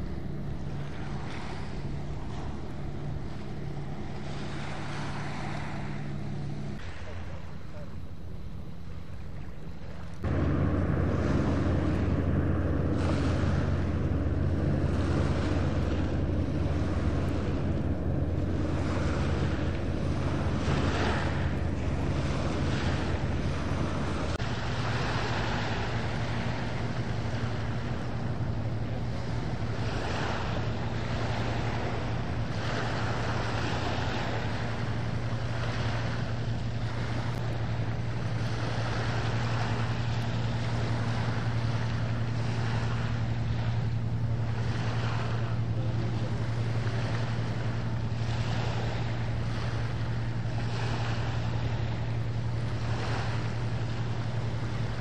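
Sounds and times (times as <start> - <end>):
boat engine drone: 0.0 - 55.0
water washing: 9.2 - 55.0
wind on microphone: 9.8 - 55.0.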